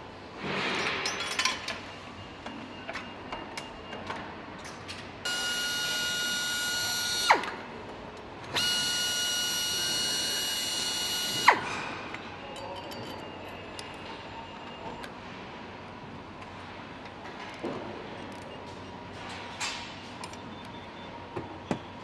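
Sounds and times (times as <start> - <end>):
power driver whine: 5.3 - 7.6, 8.5 - 11.7
metal clinks of tools: 12.4 - 14.0.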